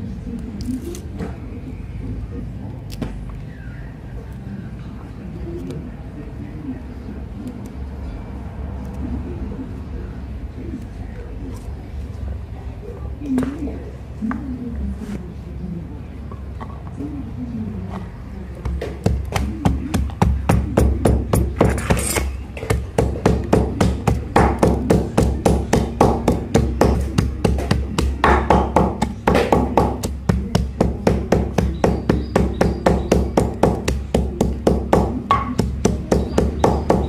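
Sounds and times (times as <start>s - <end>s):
sharp strikes on wood: 18.6s - 37.0s.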